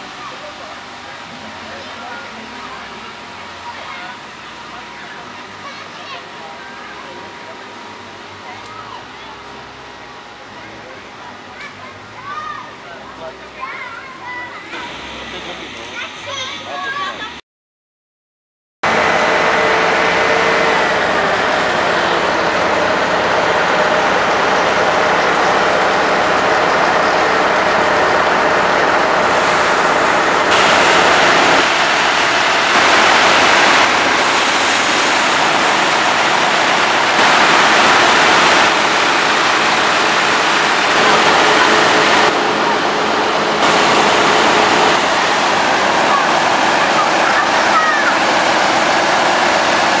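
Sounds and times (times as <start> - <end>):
fire truck engine droning: 0.0 - 17.4, 18.8 - 50.0.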